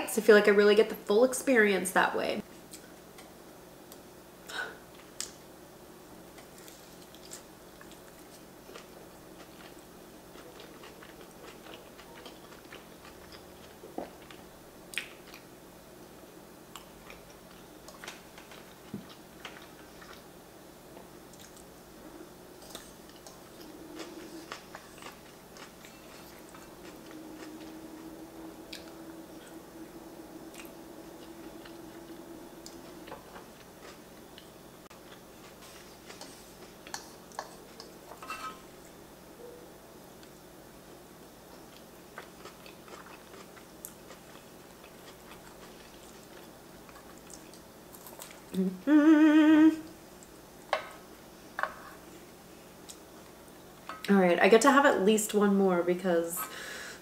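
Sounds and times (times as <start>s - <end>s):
woman chewing food: 6.3s - 15.5s, 16.7s - 38.2s, 41.3s - 50.7s.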